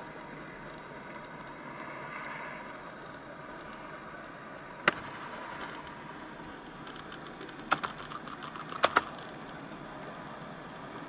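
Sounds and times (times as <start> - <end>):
fire burning with rushing noise: 0.0 - 11.0
sharp cracks of fire: 4.8 - 6.2.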